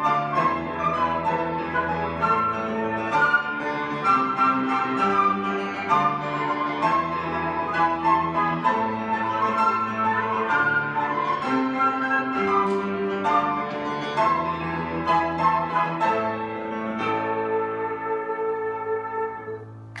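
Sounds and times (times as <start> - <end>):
flute ensemble with piano: 0.0 - 20.0.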